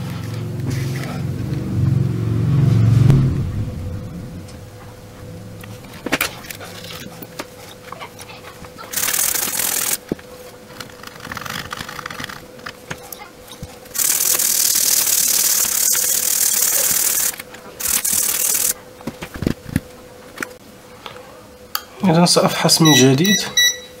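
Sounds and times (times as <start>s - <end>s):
faint steady hum: 0.0s - 24.0s
loud steady hiss: 13.9s - 18.8s.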